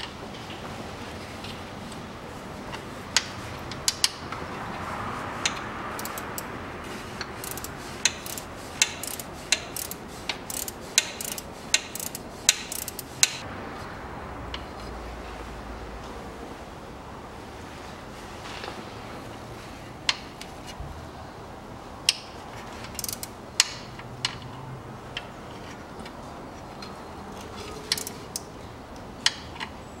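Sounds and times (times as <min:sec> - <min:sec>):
ratchet wrench clicking: 0:03.2 - 0:04.2, 0:05.4 - 0:06.6, 0:07.4 - 0:13.4, 0:22.9 - 0:24.4, 0:27.9 - 0:28.5.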